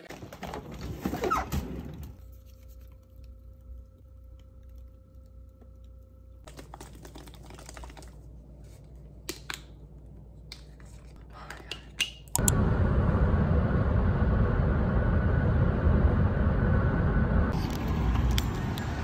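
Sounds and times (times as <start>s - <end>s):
low steady hum: 1.8s - 19.0s
carton being shaken: 6.5s - 8.2s.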